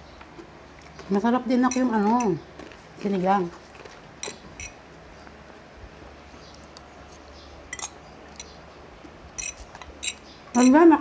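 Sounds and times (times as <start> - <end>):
cutlery clinking on plates: 7.7 - 8.5, 9.4 - 10.8.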